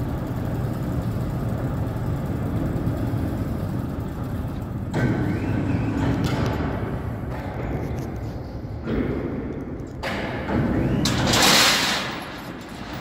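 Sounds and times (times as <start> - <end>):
machinery humming: 0.0 - 13.0.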